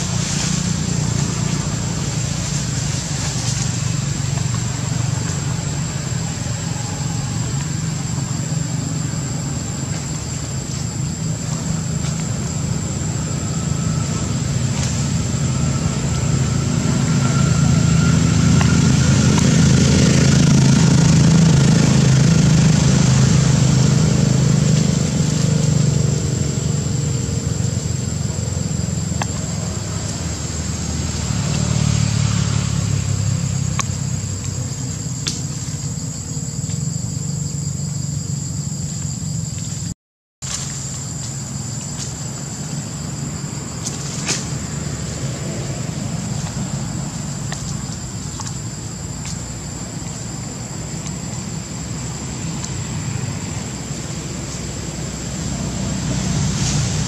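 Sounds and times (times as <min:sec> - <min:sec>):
steady high whine: 0:00.0 - 0:31.5
engine humming: 0:00.0 - 0:57.0.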